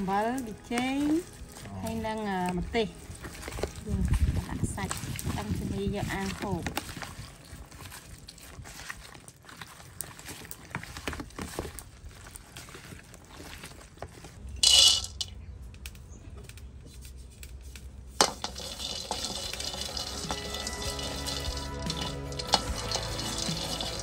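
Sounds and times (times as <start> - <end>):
squishing of meat being kneaded: 0.0 - 14.6, 15.5 - 24.0
wooden stick stirring in wok: 0.0 - 15.2, 18.1 - 24.0
peanuts poured into wok rattling: 14.6 - 15.3, 18.2 - 24.0.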